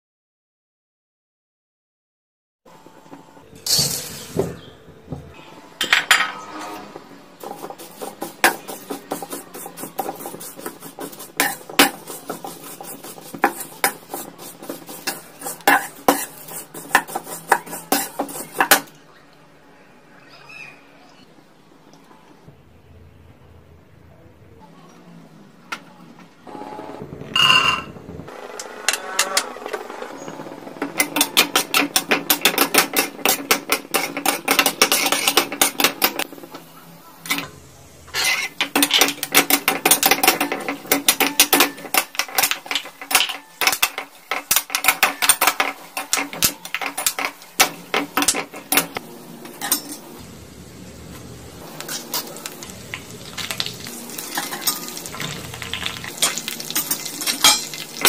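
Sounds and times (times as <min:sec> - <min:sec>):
metal spoon scraping a pan: 0:06.1 - 0:18.9, 0:30.8 - 0:36.3, 0:38.1 - 0:50.1, 0:51.8 - 0:58.0
nuts sizzling in hot oil: 0:07.4 - 0:18.9, 0:28.7 - 0:58.0.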